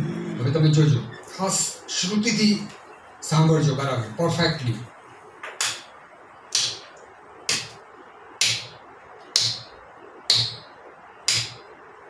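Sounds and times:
hand claps: 5.5 - 5.9, 6.5 - 6.9, 7.5 - 7.8, 8.4 - 8.8, 9.4 - 9.7, 10.3 - 10.6, 11.3 - 11.6.

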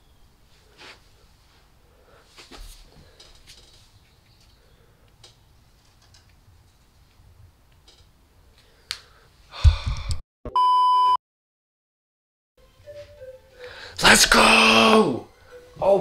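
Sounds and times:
high test-pattern beep: 10.5 - 11.2.

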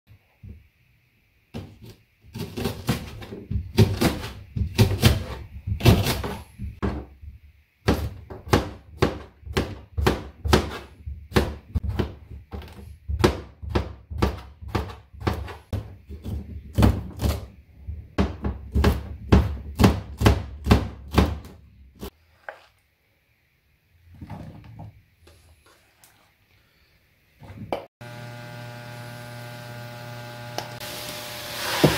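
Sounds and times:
knife chopping on cutting board: 2.4 - 7.0, 7.8 - 17.5.

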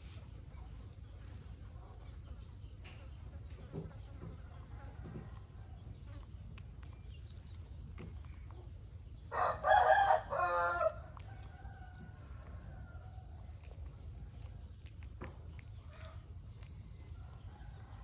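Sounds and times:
rooster crowing: 9.3 - 13.2.

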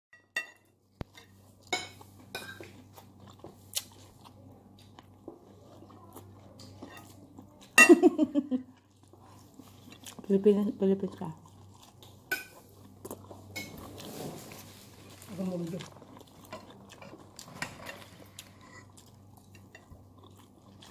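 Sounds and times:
biting and chewing corn: 1.0 - 7.8, 8.6 - 20.9
woman's voice: 10.2 - 11.4.

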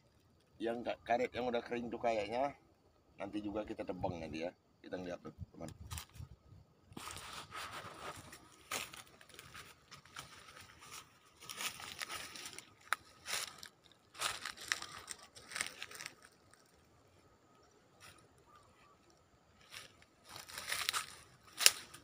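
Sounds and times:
footsteps crunching dry leaves: 7.0 - 16.9, 19.6 - 22.0.

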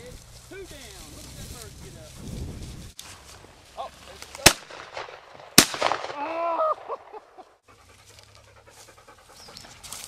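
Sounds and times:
shotgun shots: 4.4 - 7.1.

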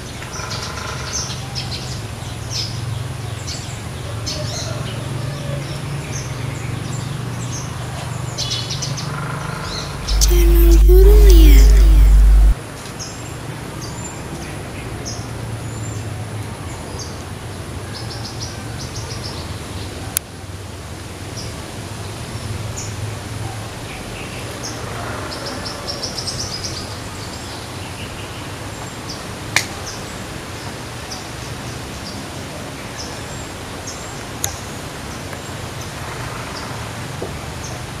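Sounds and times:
low background hum: 10.0 - 12.6.

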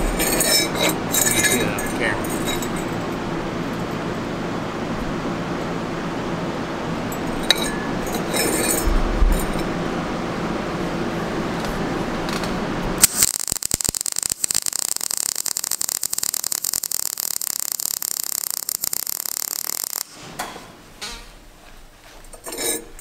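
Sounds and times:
welding arc crackling: 13.0 - 20.2.

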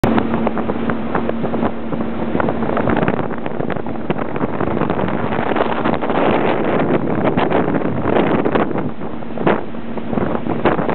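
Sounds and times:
outboard motor running: 0.0 - 10.9
water slapping hulls: 0.0 - 10.9
wind on microphone: 0.0 - 10.9.

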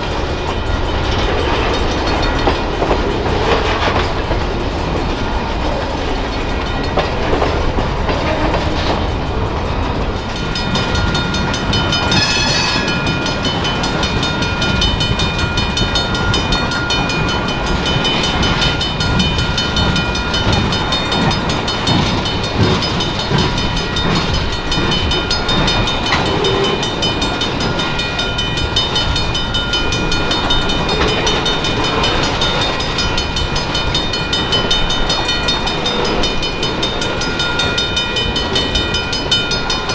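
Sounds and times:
clickety-clack over rail joints: 0.0 - 39.9
train wheels rumbling on rail: 0.0 - 39.9
steady high tones ringing: 10.4 - 39.9.

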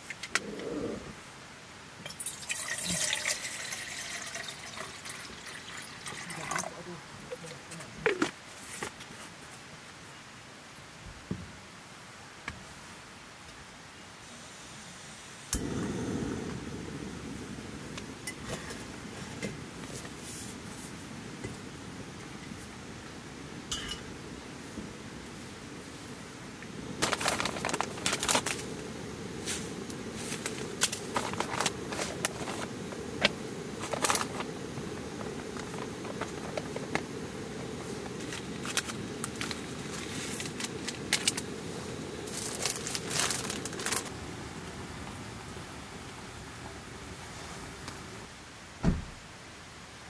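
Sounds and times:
low background noise: 0.0 - 50.0
rustling and crinkling: 7.4 - 9.8, 18.4 - 21.6, 26.9 - 44.2
small objects scraping: 27.0 - 28.7, 29.4 - 34.6, 42.2 - 44.1.

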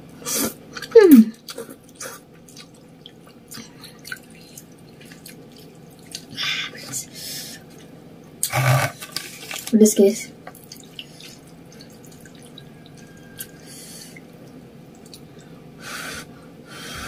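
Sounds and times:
mouth clicks and chewing: 0.8 - 6.4, 15.0 - 15.5
noodles slurped: 8.4 - 9.7.

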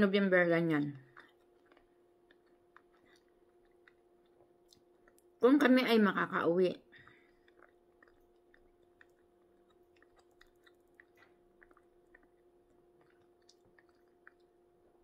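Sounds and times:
faint steady hum: 0.0 - 15.0
chewing mouth clicks: 1.1 - 5.3, 7.0 - 14.6.

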